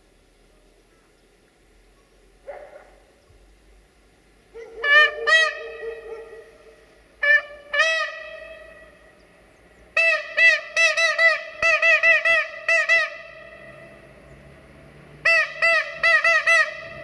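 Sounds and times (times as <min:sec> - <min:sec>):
train horn tooting: 0:07.2 - 0:09.2, 0:10.0 - 0:14.2, 0:15.2 - 0:17.0.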